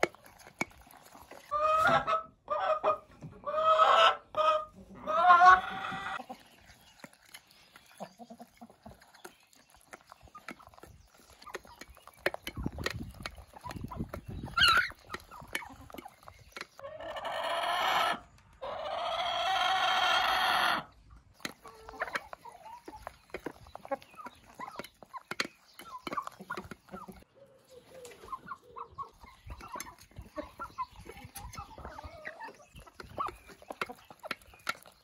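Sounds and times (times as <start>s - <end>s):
beaks pecking on enamel plate: 0.0s - 2.0s, 6.1s - 17.2s, 21.2s - 35.0s.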